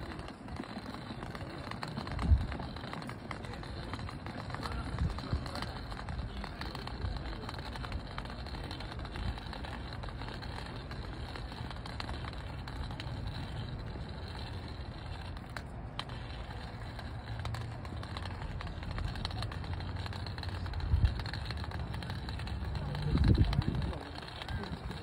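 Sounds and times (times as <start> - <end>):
wind buffeting microphone: 2.1 - 2.8, 4.7 - 6.4, 19.0 - 25.0.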